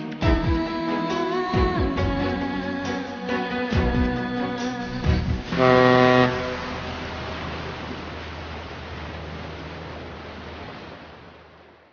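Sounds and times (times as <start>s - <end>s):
rushing noise with low hum: 4.9s - 11.9s
ship's horn blast: 5.5s - 7.6s.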